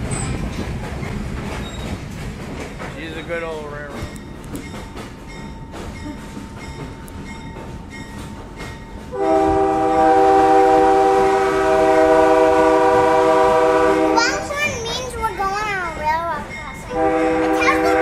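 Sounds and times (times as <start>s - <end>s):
train wheels clicking over rail joints: 0.0s - 9.8s, 14.2s - 18.0s
locomotive air horn: 9.1s - 14.2s, 16.9s - 18.0s.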